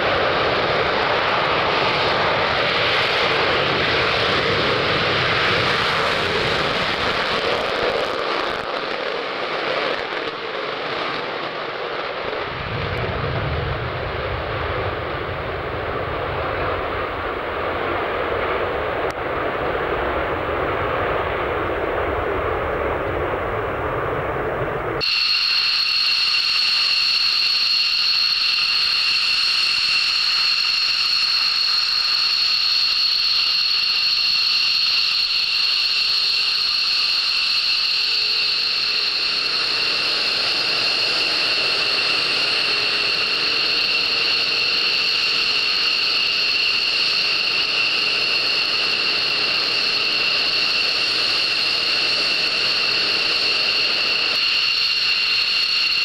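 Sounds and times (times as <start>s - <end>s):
jet engine high-pitched whine: 0.0s - 56.0s
low rumble: 12.5s - 25.0s.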